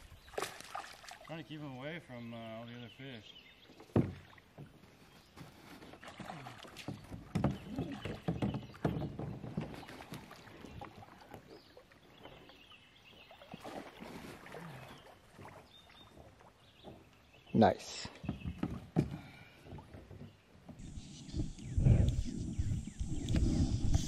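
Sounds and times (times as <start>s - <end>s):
water splashing: 0.0s - 2.0s, 5.4s - 17.0s
knocks on plastic kayak: 3.9s - 4.2s.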